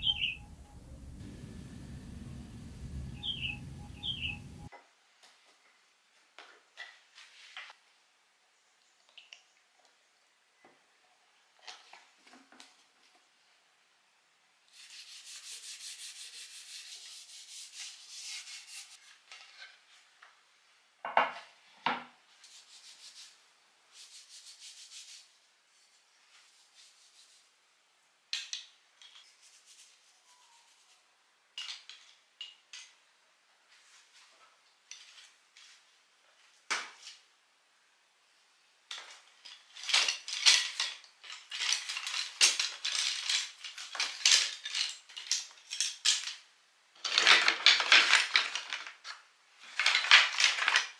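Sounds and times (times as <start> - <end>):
wooden utensils clattering: 38.9 - 46.4, 49.7 - 50.9.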